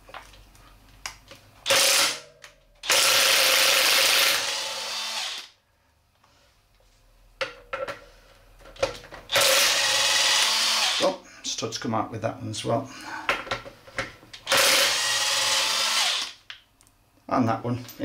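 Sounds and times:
impact driver bursts: 1.7 - 2.2, 2.8 - 5.5, 9.3 - 11.0, 14.5 - 16.4.

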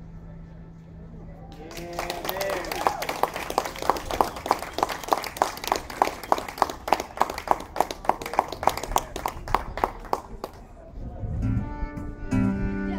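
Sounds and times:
rhythmic hand clapping: 1.5 - 10.7.

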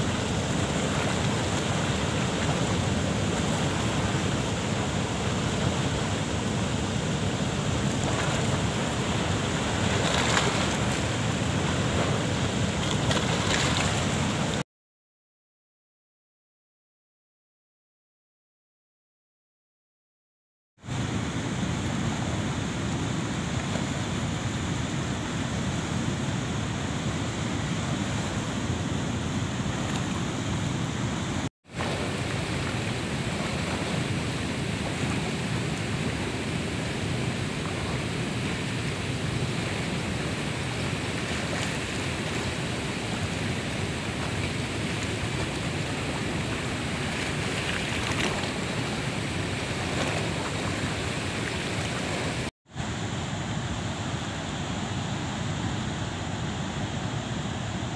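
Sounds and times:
rushing river water: 0.0 - 14.6, 20.8 - 57.9.

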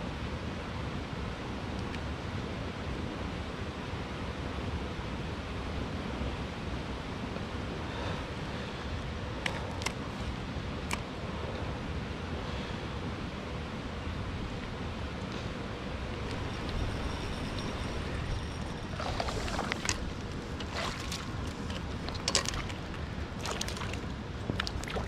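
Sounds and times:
river water flowing: 13.8 - 25.0.

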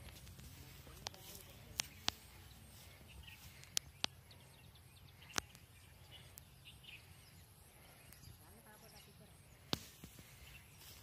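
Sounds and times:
faint bird chirps: 0.5 - 11.0
sharp clicks: 1.0 - 2.2.

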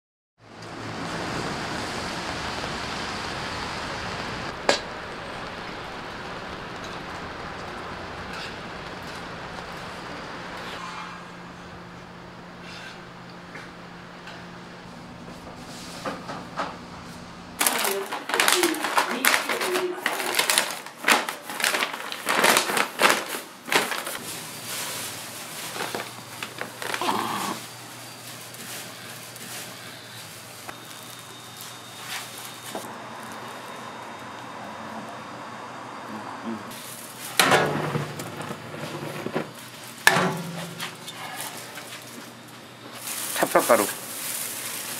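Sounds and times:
crackling and crunching clatters: 0.5 - 11.0, 17.6 - 33.7, 36.7 - 44.9
steady hiss: 1.2 - 10.8, 41.0 - 44.9
steady low hum: 1.6 - 17.6.

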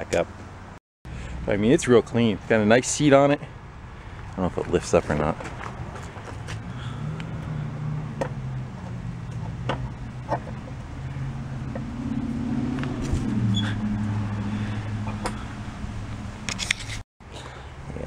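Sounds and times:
vehicle engine running: 4.0 - 16.8.

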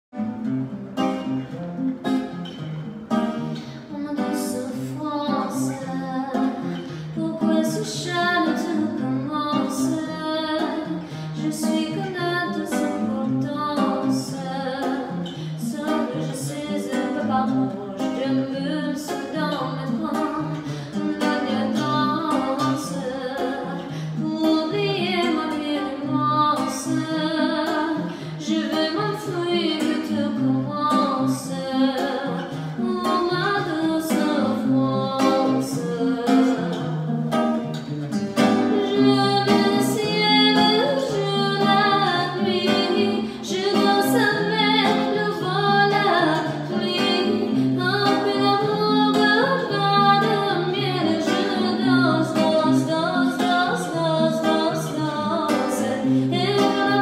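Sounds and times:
plucked acoustic guitar: 0.1 - 57.0
woman singing: 3.2 - 57.0.

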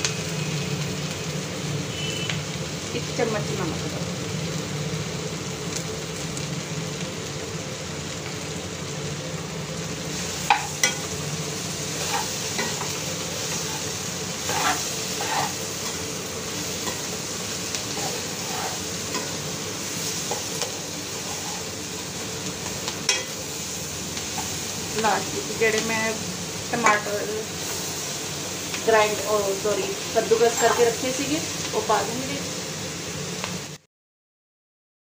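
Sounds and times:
food sizzling in a pot: 0.0 - 33.9
metal spoon scraping a pot: 14.4 - 15.6, 17.9 - 19.4.

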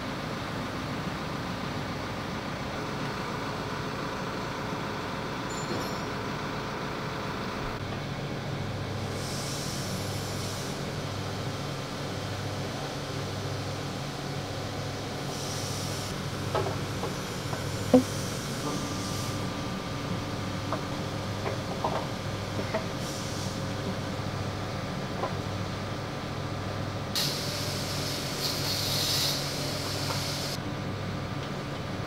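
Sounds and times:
hiss: 9.1 - 11.0, 15.2 - 16.2, 17.1 - 19.5, 22.9 - 23.8, 27.2 - 30.6.

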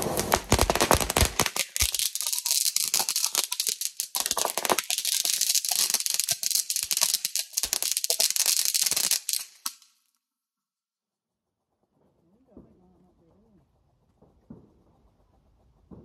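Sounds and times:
firework fountain hissing and crackling: 0.0 - 9.9.

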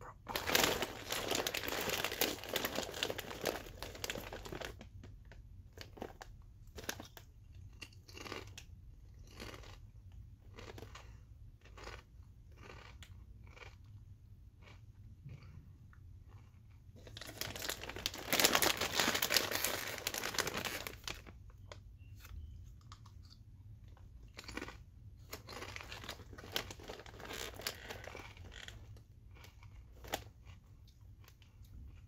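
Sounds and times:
bag crinkling: 0.0 - 4.8, 17.0 - 21.4, 25.3 - 28.8
chips crunching: 0.0 - 4.8, 5.8 - 14.0, 16.2 - 21.4, 22.2 - 32.0.

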